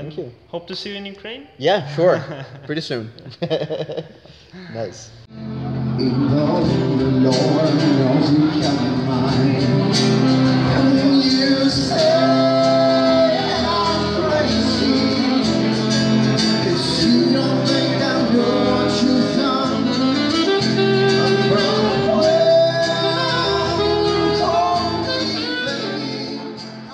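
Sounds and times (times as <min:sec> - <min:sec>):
person singing over guitar: 0:05.6 - 0:26.9.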